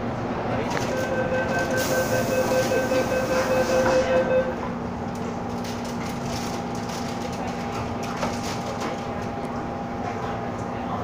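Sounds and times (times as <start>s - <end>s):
train hum: 0.0s - 11.0s
rapid electronic beeps: 0.9s - 4.6s.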